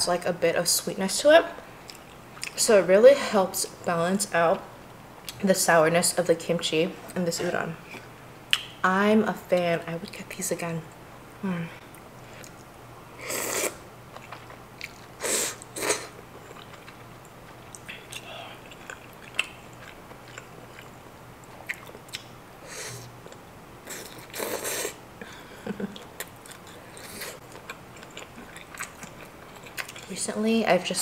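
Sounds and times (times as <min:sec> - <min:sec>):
slurping noodles: 0:13.2 - 0:13.8, 0:23.9 - 0:25.0
biting and chewing: 0:26.0 - 0:30.1.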